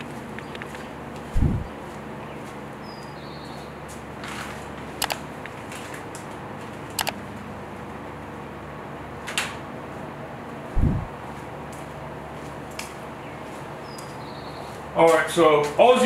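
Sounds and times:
low electrical hum: 0.0 - 16.0
sharp double clicks: 5.0 - 5.2, 7.0 - 7.2.

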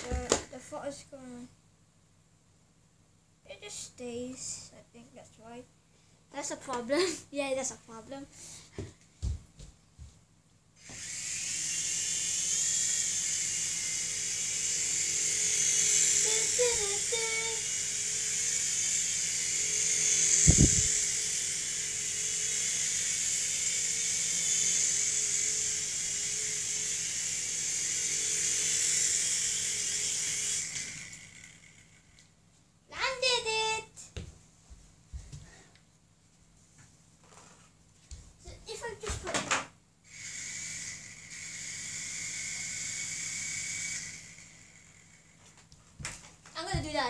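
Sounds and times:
toy helicopter rotor whine: 0.0 - 0.7, 10.8 - 32.3, 33.0 - 34.0, 38.6 - 47.0.

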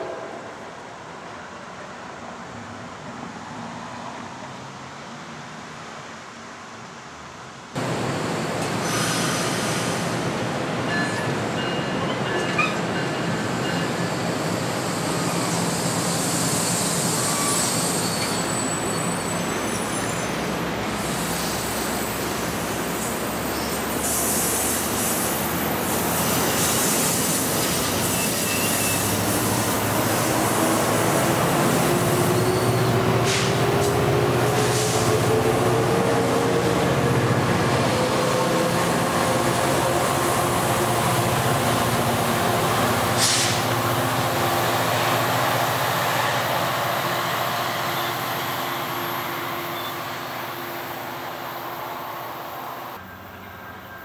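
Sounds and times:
train cars rumbling past: 7.8 - 54.0
wheels squealing against rail: 10.9 - 30.7, 31.4 - 35.2, 47.0 - 51.9.

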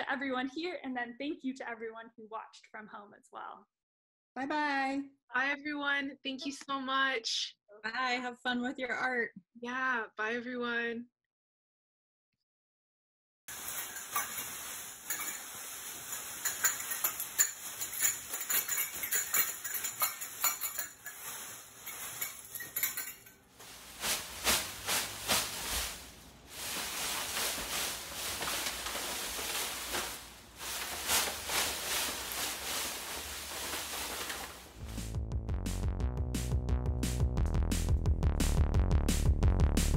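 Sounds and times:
foil suit clinking and jingling: 13.5 - 34.9
paper strips rustling: 13.5 - 35.0.

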